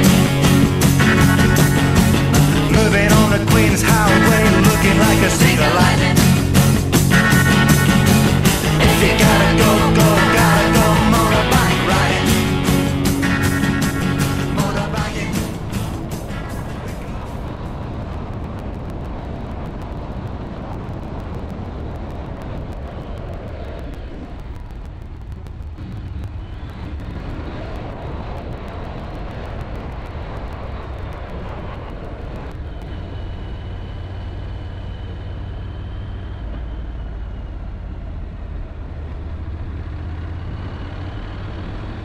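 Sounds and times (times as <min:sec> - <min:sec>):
motorcycle engine running: 0:00.0 - 0:18.2, 0:32.6 - 0:42.0
wind noise on microphone: 0:15.5 - 0:35.2.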